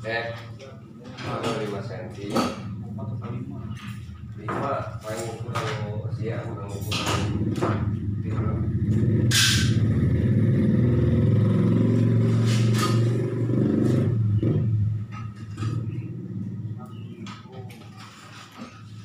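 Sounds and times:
engine running: 6.9s - 19.0s.

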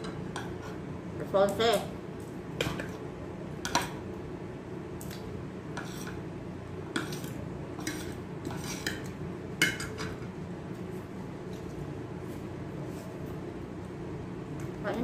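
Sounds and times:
steady low hum: 0.0s - 15.0s
fingers working rice on metal plate: 7.0s - 9.1s.

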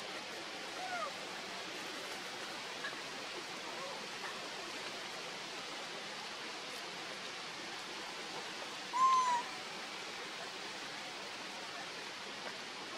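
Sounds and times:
outdoor background hiss: 0.0s - 12.9s.

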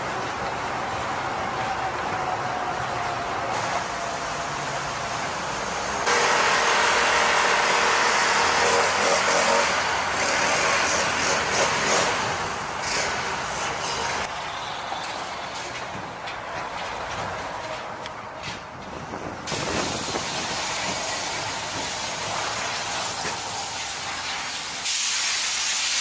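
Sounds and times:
heavy machinery engines running: 0.0s - 24.9s
cut-off saw grinding asphalt: 5.9s - 14.3s.

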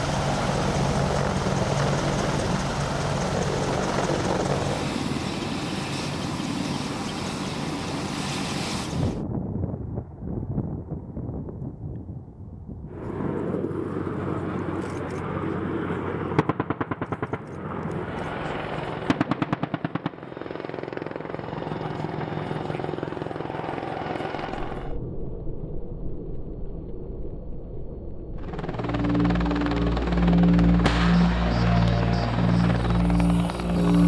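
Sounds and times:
helicopter flying: 0.0s - 9.2s, 12.9s - 25.0s, 28.3s - 34.0s
rapid cannon fire: 16.4s - 17.5s.

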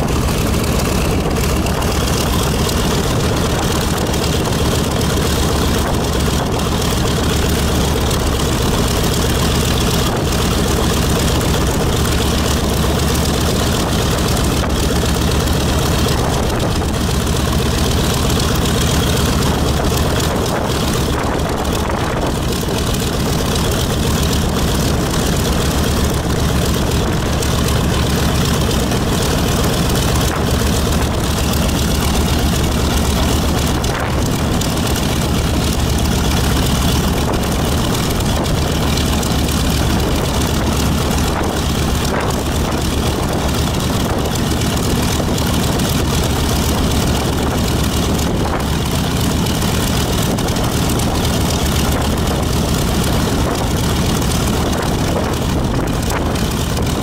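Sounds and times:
radial aircraft engine idling: 0.0s - 57.0s.

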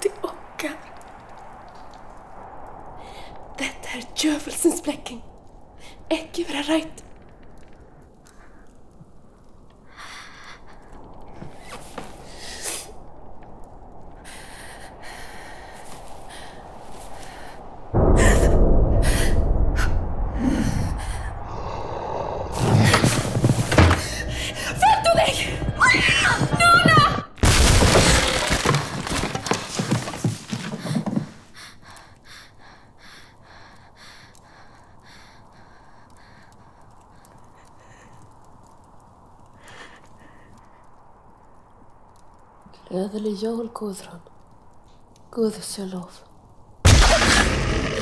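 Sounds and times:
loud crashing and thudding: 27.4s - 30.7s, 46.9s - 48.0s.

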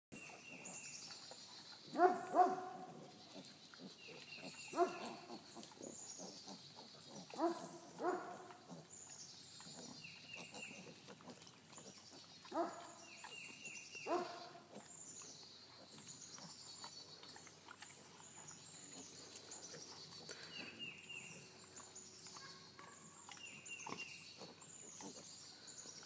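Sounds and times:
piglets squealing grunts: 2.8s - 8.9s, 9.7s - 12.0s.

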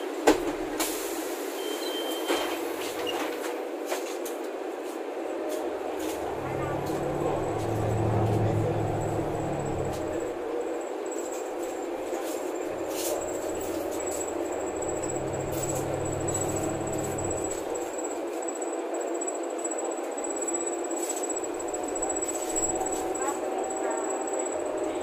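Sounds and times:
bus engine and road drone: 5.1s - 18.2s, 21.0s - 25.0s
deep engine hum: 5.7s - 18.0s, 21.3s - 25.0s
thin high whine: 5.8s - 10.6s, 11.4s - 18.0s, 21.3s - 25.0s
interior fittings rattling: 11.7s - 17.9s.

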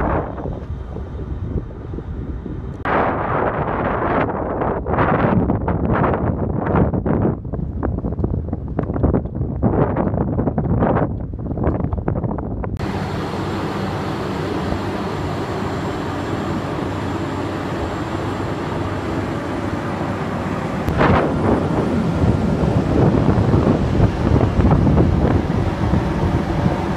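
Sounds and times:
boat engine running: 12.7s - 26.9s
wind and water rushing: 12.8s - 26.9s.

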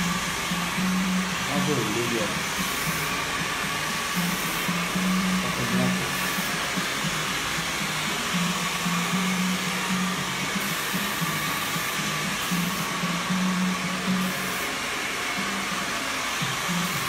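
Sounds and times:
hair dryer blowing: 0.0s - 17.0s
music playing: 0.0s - 17.0s.

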